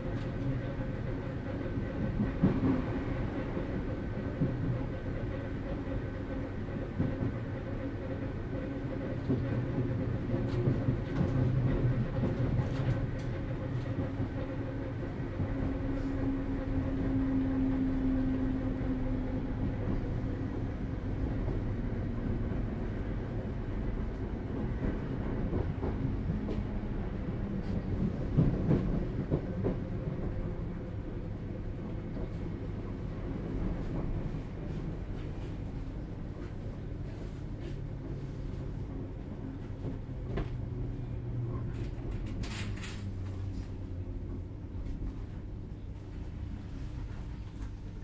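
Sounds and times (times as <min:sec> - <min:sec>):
train wheels rumbling on rails: 0:00.0 - 0:48.0
rail-joint clacks: 0:38.9 - 0:44.4.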